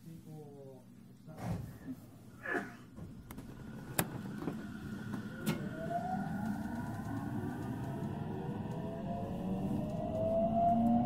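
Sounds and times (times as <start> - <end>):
electric train inverter whine: 3.0 - 11.0
train rumble: 3.0 - 11.0.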